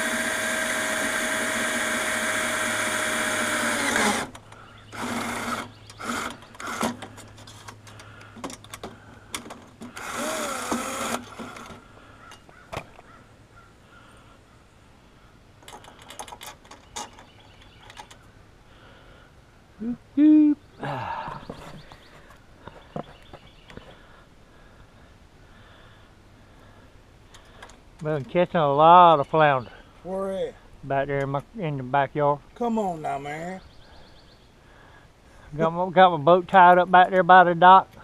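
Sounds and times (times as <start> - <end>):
cordless drill running: 0.0 - 4.3, 4.9 - 7.0, 9.9 - 11.8.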